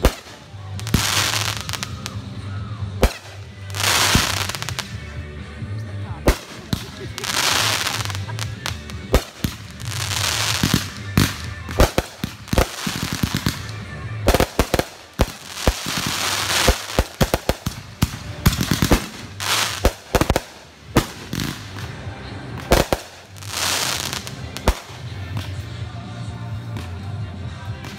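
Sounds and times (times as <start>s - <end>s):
fireworks bangs: 0.0s - 2.4s, 3.0s - 5.0s, 6.2s - 25.6s
fireworks hissing and crackling: 0.0s - 5.1s, 6.1s - 25.9s.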